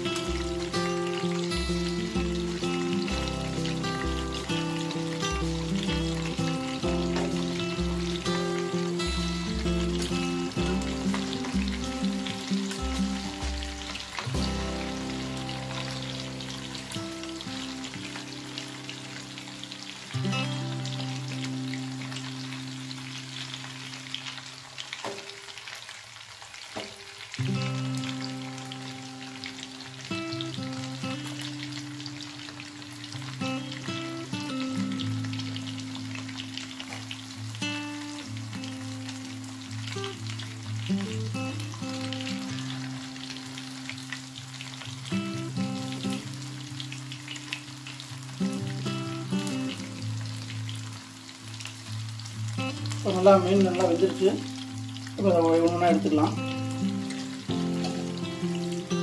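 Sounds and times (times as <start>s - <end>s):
low background music: 0.0s - 24.4s
fish sizzling in oil: 0.0s - 59.0s.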